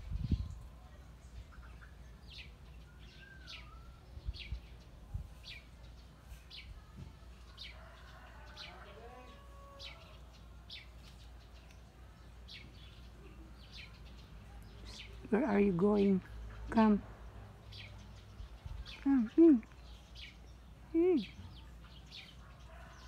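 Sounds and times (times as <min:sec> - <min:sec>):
bird chirping: 0:00.0 - 0:23.0
birds warbling: 0:07.5 - 0:17.0.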